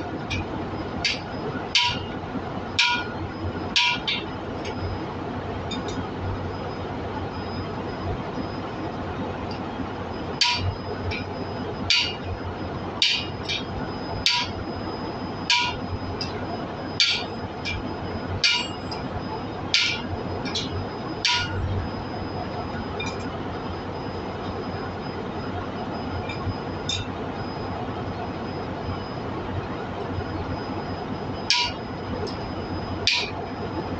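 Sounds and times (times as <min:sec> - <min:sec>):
hammer striking metal: 0:01.8 - 0:02.1, 0:02.8 - 0:03.1, 0:03.8 - 0:04.2, 0:10.4 - 0:10.7, 0:11.9 - 0:12.2, 0:14.2 - 0:14.5, 0:15.5 - 0:15.8, 0:17.0 - 0:17.8, 0:18.4 - 0:18.9, 0:19.8 - 0:21.6, 0:31.5 - 0:31.8, 0:33.1 - 0:33.3.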